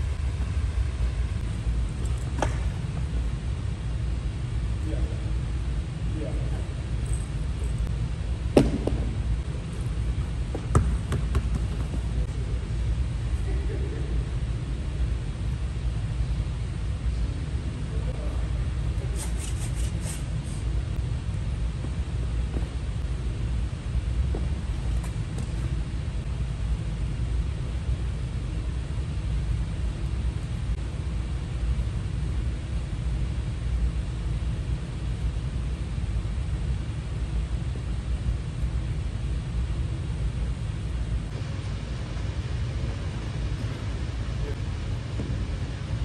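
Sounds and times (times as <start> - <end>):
steady low rumble: 0.0 - 46.0
basketball bouncing on wooden floor: 10.5 - 12.1.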